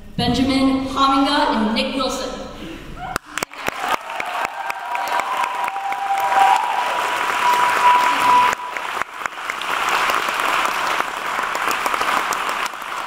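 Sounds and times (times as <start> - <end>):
audience applause: 3.2 - 13.0
thin high tone: 7.4 - 9.0.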